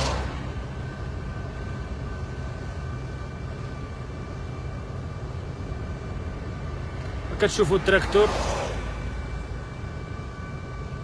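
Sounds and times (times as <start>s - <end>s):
car engine and road noise: 0.0s - 11.0s
faint steady high tones: 0.1s - 11.0s.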